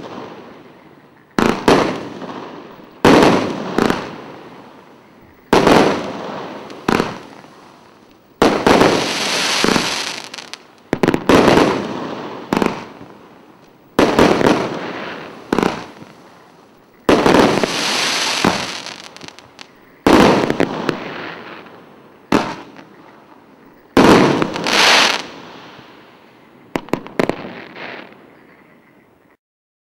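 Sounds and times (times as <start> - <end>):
firework bangs with fizzing tails: 1.4 - 28.9
small firework pops: 5.4 - 16.2, 16.9 - 21.7, 22.3 - 25.9, 26.7 - 28.8.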